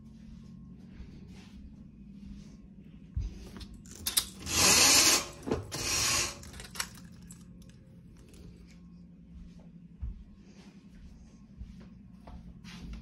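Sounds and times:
roller shade mechanism running: 0:03.4 - 0:08.5.

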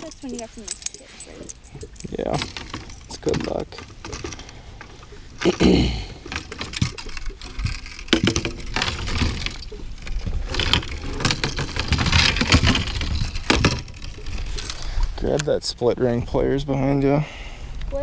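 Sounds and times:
fishing rods knocking and clattering: 0:00.0 - 0:15.5.

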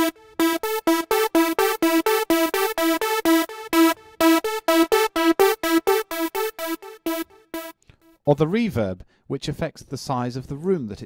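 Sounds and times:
synthesizer chord stabs with echo: 0:00.0 - 0:08.2.

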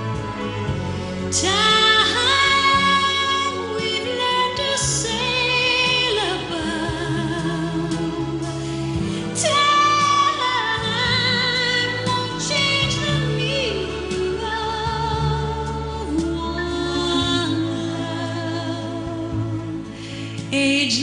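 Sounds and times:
orchestral accompaniment: 0:00.0 - 0:05.2
woman singing with vibrato: 0:00.0 - 0:21.0.

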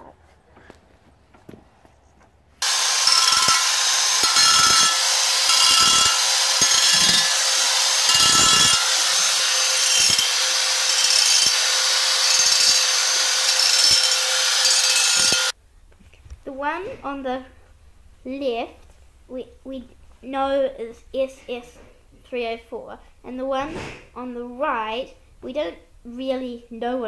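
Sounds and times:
motor whine: 0:02.6 - 0:15.5
angle grinder grinding steel: 0:02.6 - 0:15.6.

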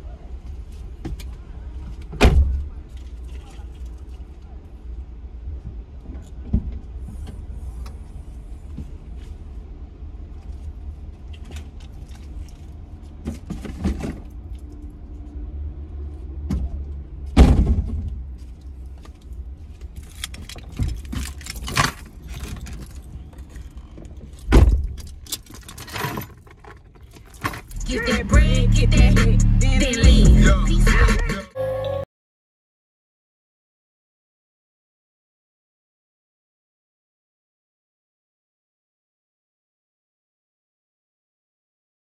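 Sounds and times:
car door thumping shut: 0:17.4 - 0:18.1, 0:24.5 - 0:25.0
keys jangling: 0:20.0 - 0:23.6, 0:24.8 - 0:27.8
car engine idling: 0:26.5 - 0:31.3.

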